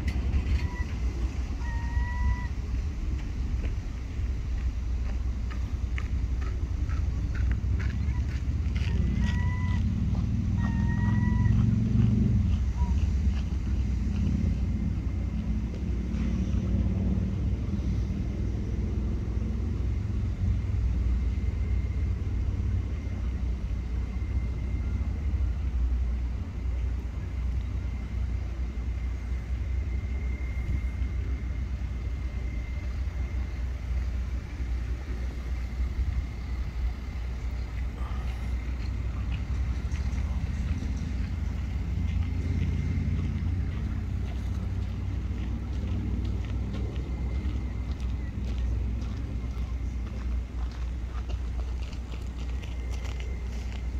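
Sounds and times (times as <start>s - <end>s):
faint high tone: 1.6s - 2.6s.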